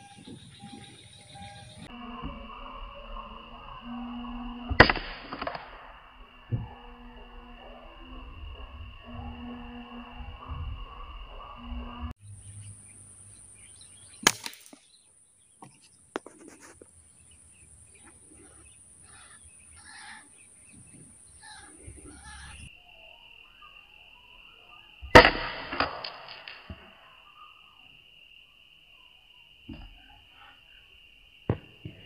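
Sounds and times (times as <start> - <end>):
steady high tone: 0.0 - 12.1.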